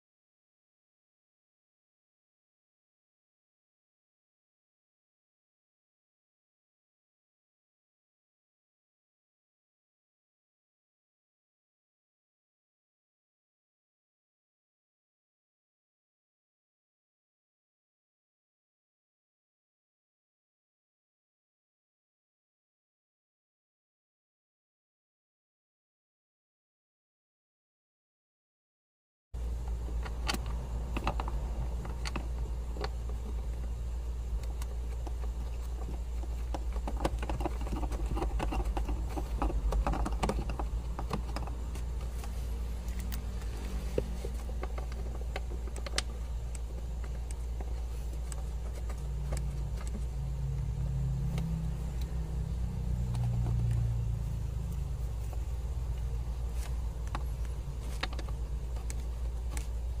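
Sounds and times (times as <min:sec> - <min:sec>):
steady low hum: 0:29.4 - 1:00.0
rustling: 0:53.0 - 1:00.0.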